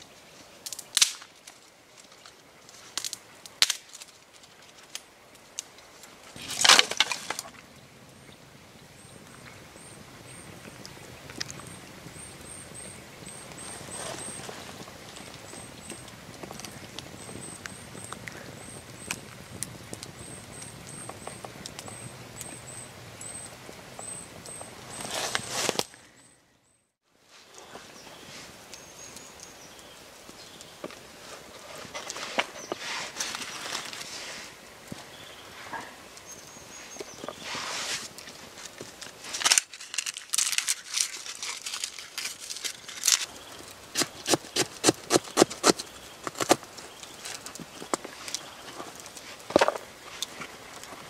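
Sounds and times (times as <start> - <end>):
wood snapping and cracking: 0.6 - 7.6, 38.2 - 51.0
campfire crackling and popping: 0.6 - 26.0, 28.6 - 51.0
faint high chirp: 20.2 - 26.9.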